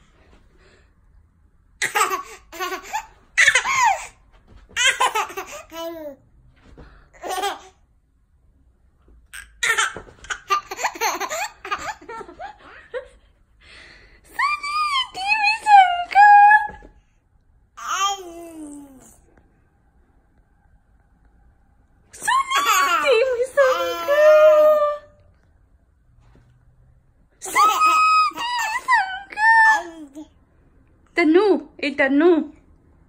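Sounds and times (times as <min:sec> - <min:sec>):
baby laughing: 0:01.8 - 0:06.2, 0:07.2 - 0:07.8, 0:09.4 - 0:12.7, 0:27.4 - 0:29.0.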